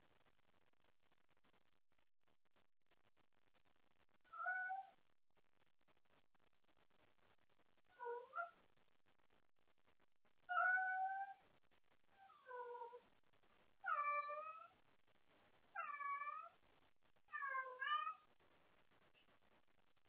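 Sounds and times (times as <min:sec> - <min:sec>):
cat meowing: 0:04.3 - 0:05.0, 0:07.9 - 0:08.6, 0:10.5 - 0:11.4, 0:12.2 - 0:13.0, 0:13.8 - 0:14.7, 0:15.8 - 0:16.6, 0:17.3 - 0:18.3.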